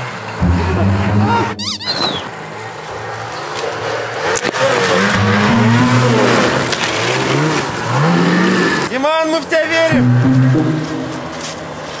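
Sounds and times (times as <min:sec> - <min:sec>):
snowmobile engine revving: 0:04.6 - 0:08.9.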